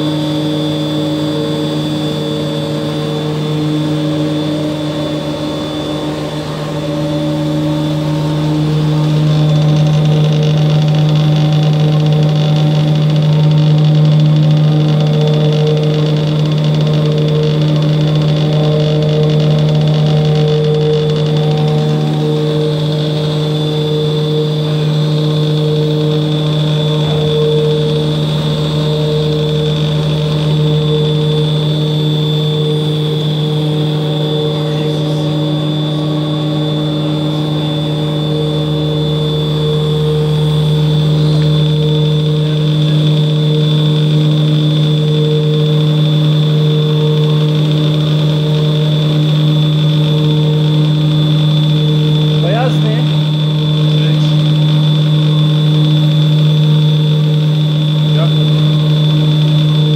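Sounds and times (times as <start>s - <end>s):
high mechanical whine: 0.0s - 59.9s
paddle mixer humming: 0.0s - 59.9s.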